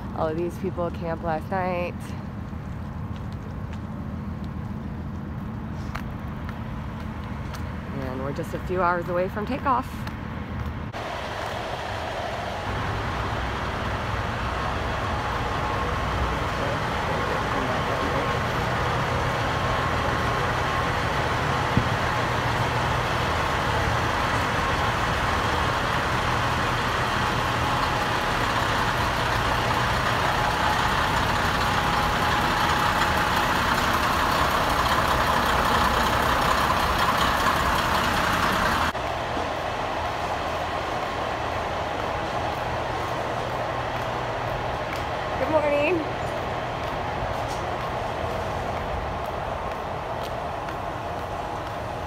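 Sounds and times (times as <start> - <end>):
truck engines rumbling: 0.0 - 52.0.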